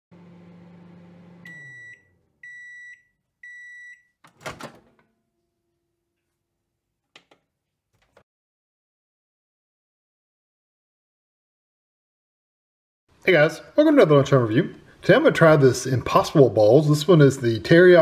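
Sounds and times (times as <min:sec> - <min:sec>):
microwave oven humming: 0:00.1 - 0:02.8
microwave beeps: 0:01.0 - 0:04.2.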